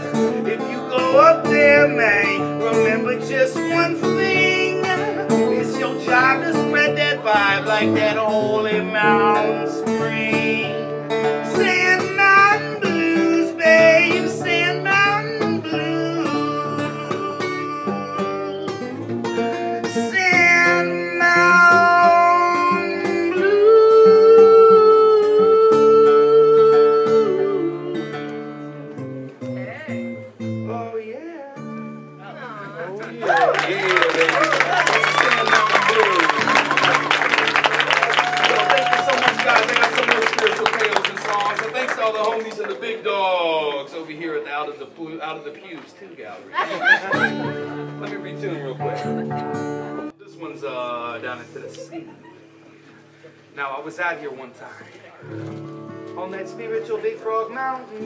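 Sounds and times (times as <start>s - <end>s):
man singing into a microphone: 0.0s - 18.9s, 19.8s - 28.4s
acoustic guitar: 0.0s - 58.0s.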